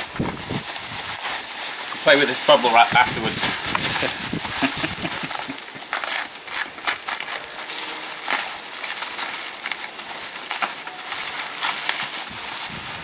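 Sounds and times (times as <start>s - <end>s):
bubble wrap crackling: 0.0s - 13.0s.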